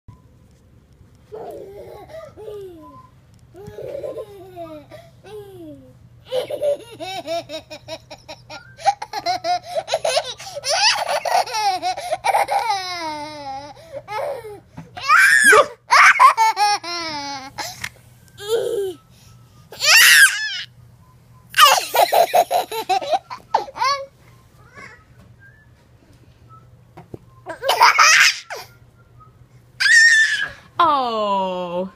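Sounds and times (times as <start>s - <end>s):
toddler giggling: 1.3s - 3.0s, 3.6s - 14.6s, 15.4s - 17.8s, 18.4s - 19.0s, 21.6s - 24.1s, 27.5s - 28.7s.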